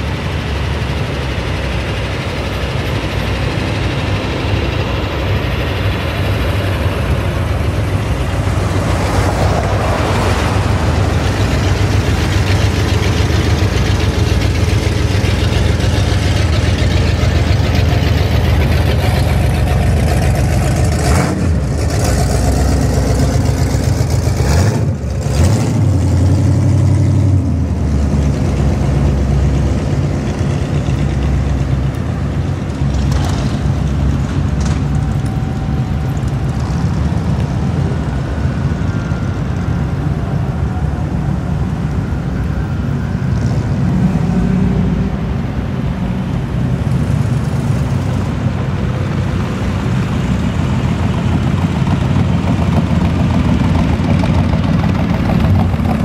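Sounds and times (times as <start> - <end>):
car engines driving past: 0.0 - 56.0.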